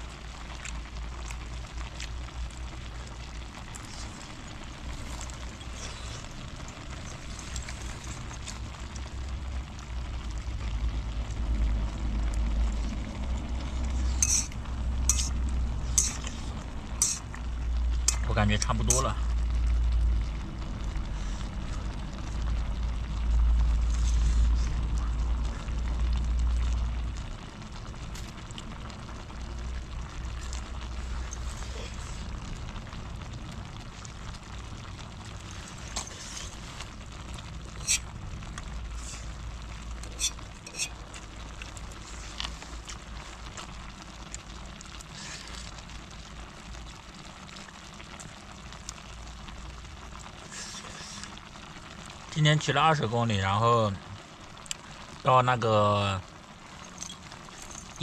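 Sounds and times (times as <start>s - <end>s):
deep uneven rumble: 0.0s - 55.2s
gas stove hiss: 11.6s - 19.4s, 49.5s - 53.0s.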